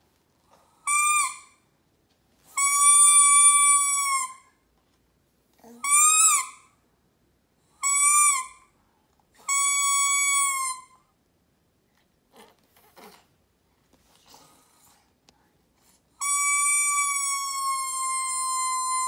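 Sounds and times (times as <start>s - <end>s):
toy trumpet toots: 0.9s - 1.5s, 2.6s - 4.4s, 9.5s - 10.9s, 16.2s - 19.0s.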